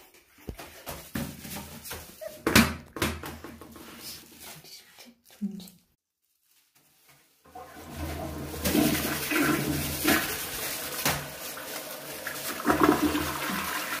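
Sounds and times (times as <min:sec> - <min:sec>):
toilet flushing: 0:07.5 - 0:14.0.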